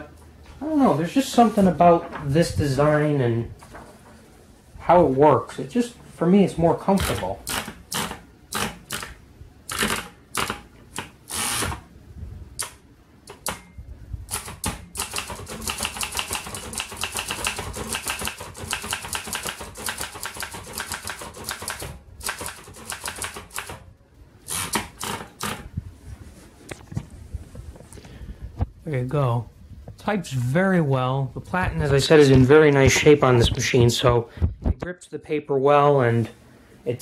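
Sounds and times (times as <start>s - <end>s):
typewriter keystrokes: 14.3s - 23.8s.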